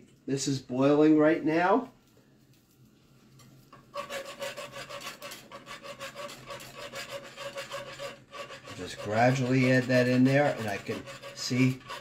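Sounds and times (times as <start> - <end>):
wire whisk beating in saucepan: 3.7 - 12.0.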